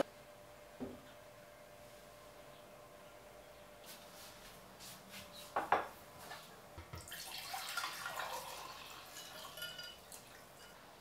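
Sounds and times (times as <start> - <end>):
drink poured into mug: 7.0 - 10.5
plate clinking on stone: 9.2 - 10.0.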